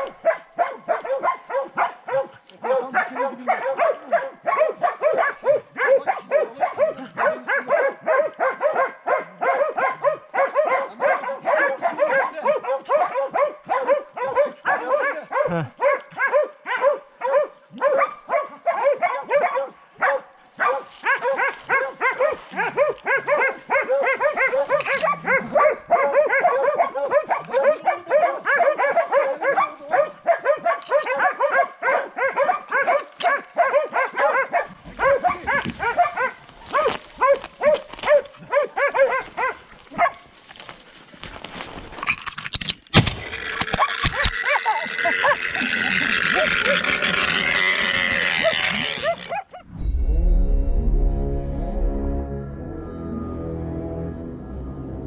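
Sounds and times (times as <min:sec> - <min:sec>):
dogs barking rapidly: 0:00.0 - 0:40.7, 0:43.5 - 0:49.8
brush rustling: 0:24.1 - 0:25.1, 0:35.5 - 0:38.4.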